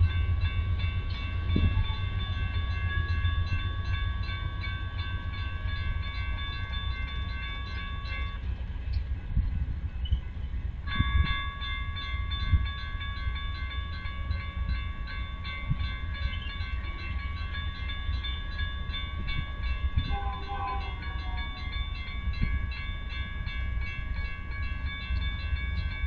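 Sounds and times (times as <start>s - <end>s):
diesel train rumble: 0.0s - 26.0s
railroad crossing bell ringing: 0.0s - 26.0s.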